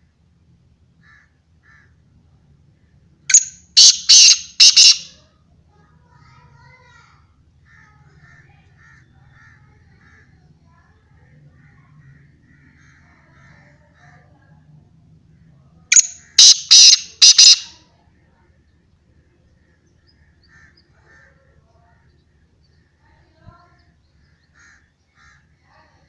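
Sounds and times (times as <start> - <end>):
francolin giving harsh call: 3.3 - 5.2, 15.9 - 17.7.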